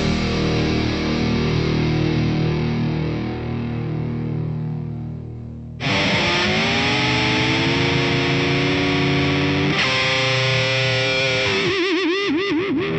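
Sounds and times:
distorted electric guitar chords: 0.0s - 12.9s.

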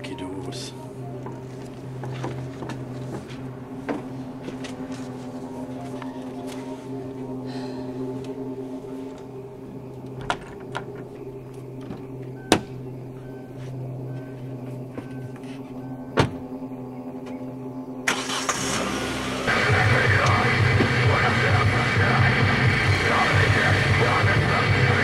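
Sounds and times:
car door warning chime beeping: 0.0s - 2.3s, 12.0s - 16.6s
car engine starting: 0.0s - 25.0s
low drone: 0.0s - 25.0s
car door shutting: 11.8s - 12.8s, 14.9s - 16.6s.

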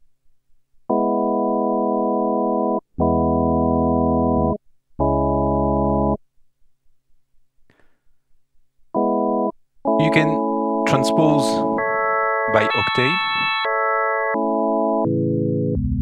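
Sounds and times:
organ synth held notes: 0.9s - 6.2s, 8.9s - 16.0s.

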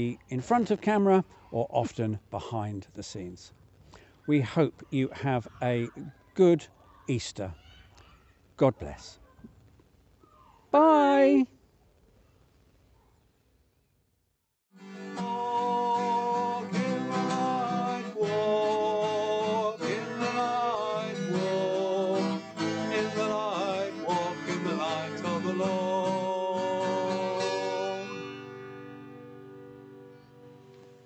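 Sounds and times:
acoustic guitar music: 14.7s - 31.0s.

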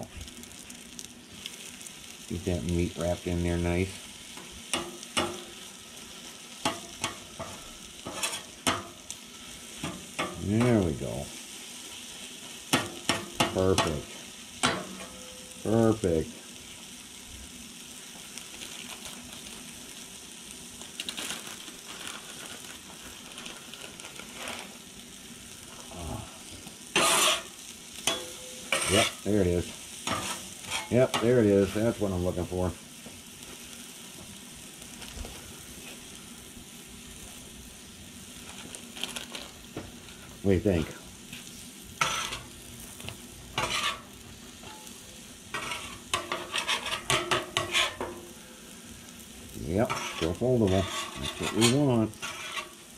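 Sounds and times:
food sizzling on a griddle: 0.0s - 52.9s
metal spatula scraping steel: 6.6s - 8.8s, 26.9s - 29.3s, 30.0s - 31.2s, 42.0s - 42.5s, 43.6s - 44.9s, 45.5s - 48.2s, 49.8s - 52.9s.

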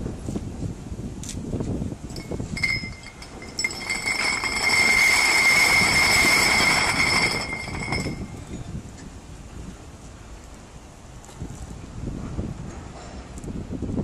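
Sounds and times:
chain links clinking and scraping: 2.1s - 8.7s
high metallic squeal: 2.2s - 8.5s.

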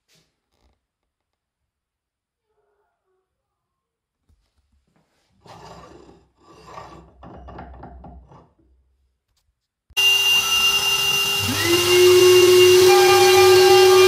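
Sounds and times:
cnc router whine and hiss: 10.0s - 14.0s.

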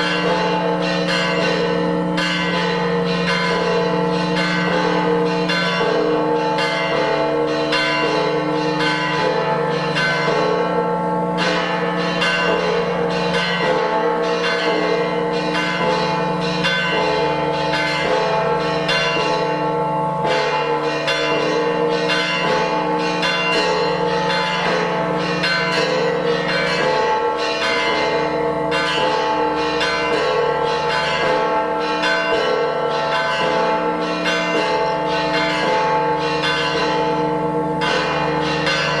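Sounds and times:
church bells pealing: 0.0s - 39.0s.

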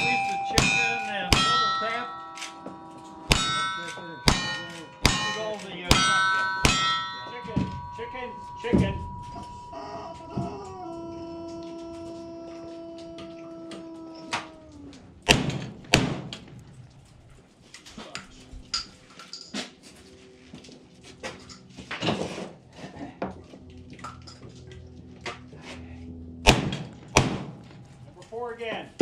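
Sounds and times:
steady pitched tone: 0.0s - 11.5s
gunshots: 15.3s - 16.3s, 26.5s - 27.6s.

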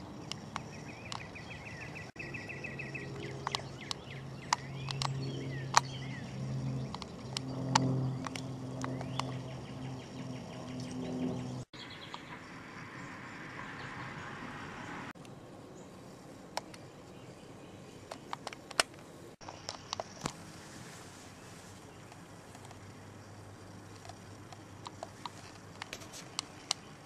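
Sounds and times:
pulsed chirping trills: 0.0s - 14.2s
steady low hum: 0.0s - 27.0s
crackles of leaf litter: 15.8s - 27.0s.

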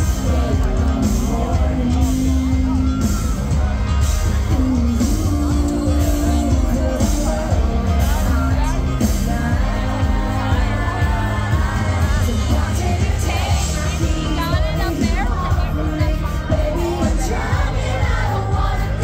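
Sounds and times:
drums: 0.0s - 19.0s
woman singing: 4.4s - 19.0s.

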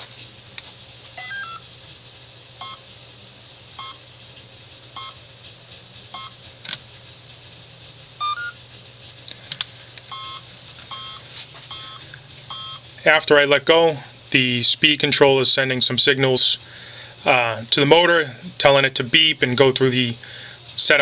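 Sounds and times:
motor controller beeps: 1.2s - 1.7s, 2.6s - 2.9s, 3.8s - 4.0s, 5.0s - 5.2s, 6.1s - 6.4s, 8.2s - 8.6s, 10.1s - 12.9s
rising chirp: 8.2s - 8.6s.

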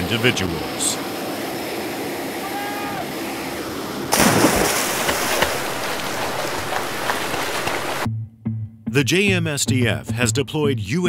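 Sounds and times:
aircraft engine: 0.0s - 4.2s
seawater splashing and churning: 0.1s - 8.1s.

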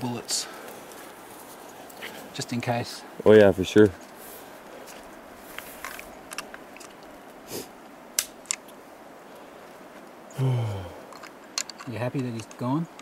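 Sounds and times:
handling rustle: 0.0s - 10.2s
rifle cartridges clicking: 5.8s - 7.1s, 11.1s - 13.0s.

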